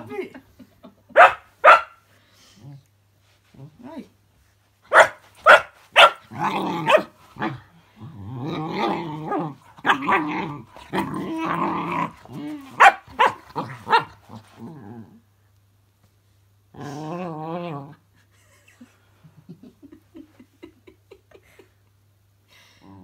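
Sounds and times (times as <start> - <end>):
puppy barking: 1.2 - 2.0, 4.9 - 7.1, 12.8 - 14.1
puppy growling: 6.0 - 15.2, 16.7 - 18.0.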